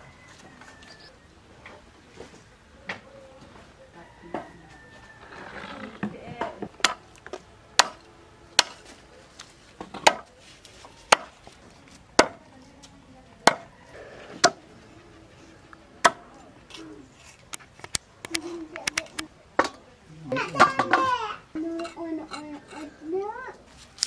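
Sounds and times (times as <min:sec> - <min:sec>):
cleaver chopping on wooden block: 0:06.4 - 0:08.0, 0:08.6 - 0:08.8, 0:09.9 - 0:10.3, 0:11.1 - 0:11.3, 0:12.2 - 0:12.4, 0:13.4 - 0:13.7, 0:14.4 - 0:14.6.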